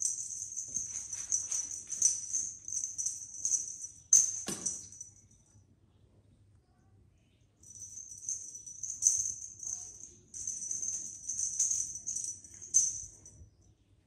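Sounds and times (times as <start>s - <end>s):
small bells jingling: 0.0s - 5.4s, 7.6s - 13.4s.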